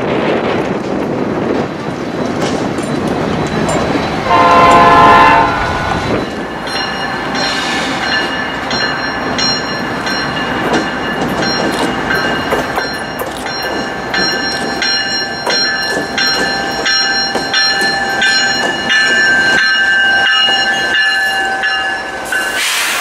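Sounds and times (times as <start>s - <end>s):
train rumbling: 0.0s - 23.0s
high ringing tones: 3.4s - 22.6s
locomotive air horn blast: 4.2s - 6.0s.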